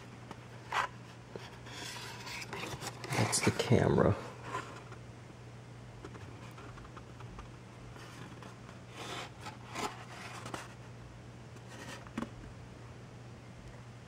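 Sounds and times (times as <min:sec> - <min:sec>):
packaging scrapes and rubs: 0:00.6 - 0:03.7, 0:08.0 - 0:10.8.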